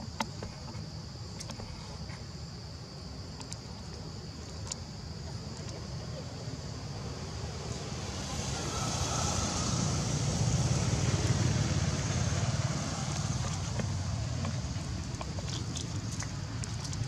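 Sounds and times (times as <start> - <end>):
steady high hiss: 0.0 - 15.1
vehicle passing rumble: 6.7 - 17.0.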